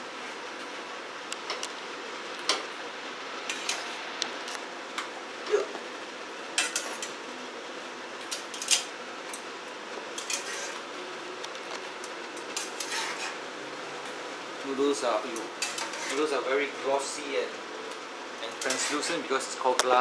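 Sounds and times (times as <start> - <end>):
utensil scraping against pot: 10.2 - 10.8, 12.6 - 13.4, 15.6 - 16.4, 18.6 - 19.1.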